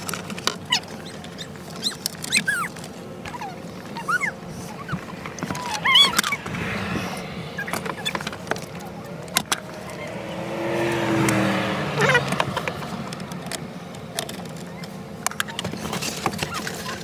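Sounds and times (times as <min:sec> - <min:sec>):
short squeaks: 0:00.6 - 0:06.5, 0:14.4 - 0:17.0
vehicle passing: 0:03.4 - 0:16.2
clicks of parts being handled: 0:12.3 - 0:17.0.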